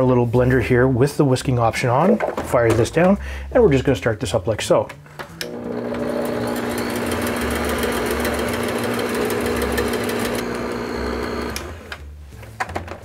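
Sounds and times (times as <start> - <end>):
stand mixer whipping cream: 5.5 - 11.9.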